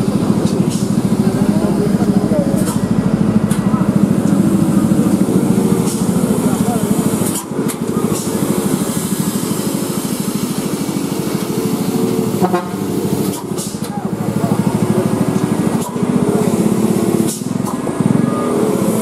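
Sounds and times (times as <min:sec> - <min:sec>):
diesel truck engine rumbling: 0:00.0 - 0:19.0
truck horn toot: 0:12.3 - 0:13.0.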